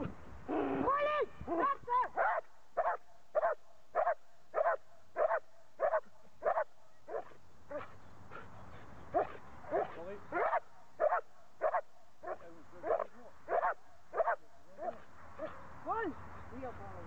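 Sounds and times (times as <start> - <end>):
dog barking: 2.2 - 7.9, 9.1 - 15.7
dog whining yelps: 2.2 - 7.9, 12.9 - 15.5.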